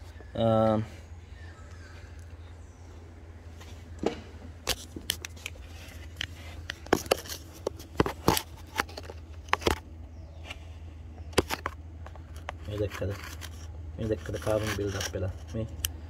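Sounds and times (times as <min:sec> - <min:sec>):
steady low hum: 0:00.0 - 0:16.0
tools and engine parts clicking: 0:04.0 - 0:09.9, 0:11.3 - 0:16.0.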